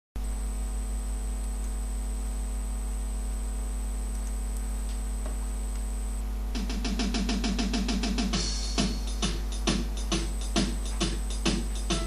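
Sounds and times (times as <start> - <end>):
electrical hum with high whine: 0.2 - 12.0
music with quick beat: 6.6 - 12.0.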